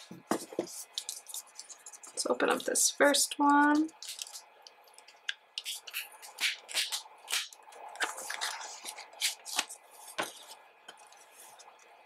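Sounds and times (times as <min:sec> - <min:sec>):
paper rustling: 0:05.8 - 0:11.7.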